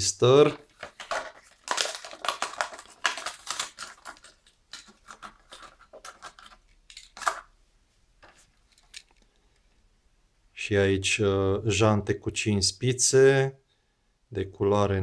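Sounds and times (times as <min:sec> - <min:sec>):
plastic blister pack crinkling: 0:00.4 - 0:07.5, 0:08.3 - 0:09.3.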